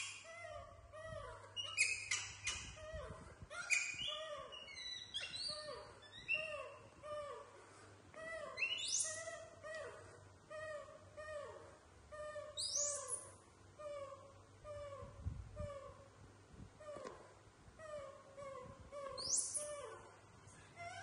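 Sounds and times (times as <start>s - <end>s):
shrill squeaks: 0.0s - 7.5s, 8.2s - 10.0s, 12.2s - 16.0s, 17.8s - 20.0s
baby monkeys cooing: 0.0s - 16.2s, 16.8s - 21.0s.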